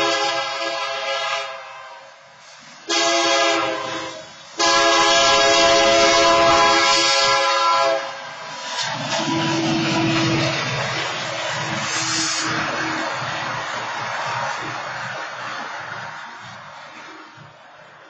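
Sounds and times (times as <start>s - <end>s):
locomotive air horn blasts: 0.0s - 2.2s, 2.8s - 8.3s, 11.8s - 13.1s
low locomotive rumble: 2.4s - 18.0s.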